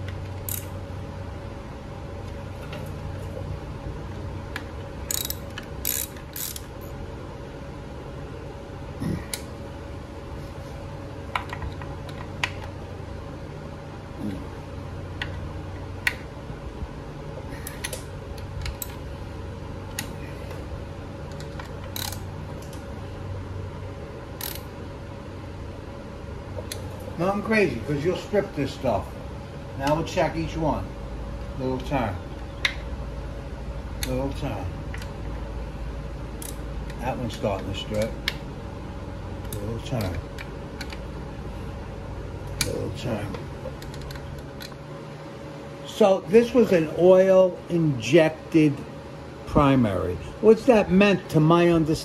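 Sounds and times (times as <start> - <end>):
hand ratchet clicking: 0.4 - 0.7, 5.0 - 6.7, 21.3 - 22.3, 24.4 - 24.7.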